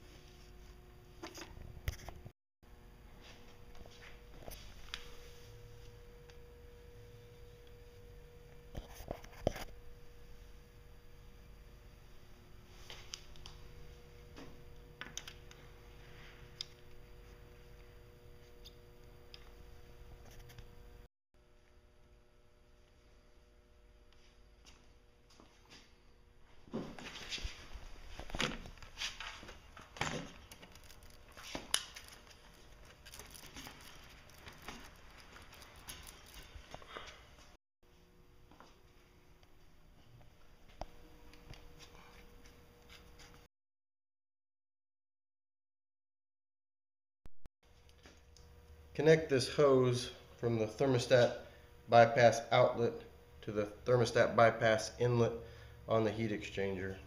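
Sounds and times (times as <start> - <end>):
faint steady hum: 0.0 - 26.4, 47.7 - 57.0
rubber hose rubbing and rustling: 26.8 - 37.3.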